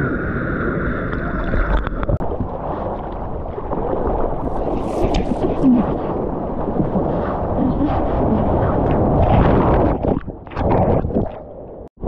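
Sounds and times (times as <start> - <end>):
water rushing and splashing: 0.0 - 11.5
wind buffeting microphone: 0.0 - 11.9.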